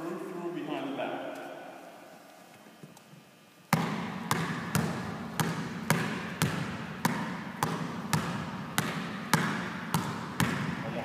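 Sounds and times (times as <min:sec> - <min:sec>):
basketball bouncing on gym floor: 0:03.7 - 0:11.0.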